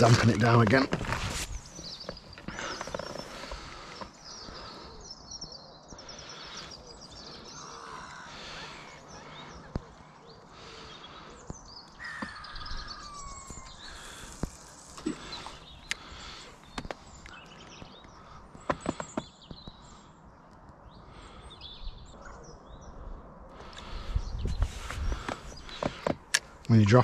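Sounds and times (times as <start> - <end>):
small birds chirping: 0.0 - 27.0
crows cawing: 6.0 - 11.3, 12.0 - 15.4
sharp clicks: 13.6 - 16.1.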